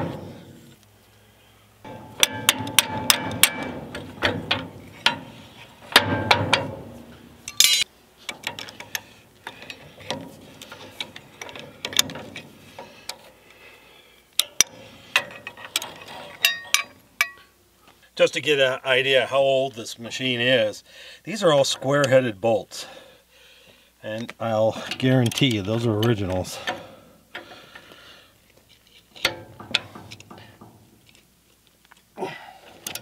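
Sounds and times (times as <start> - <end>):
wrench and hammer clinking on metal: 1.9 - 13.2, 14.4 - 17.5.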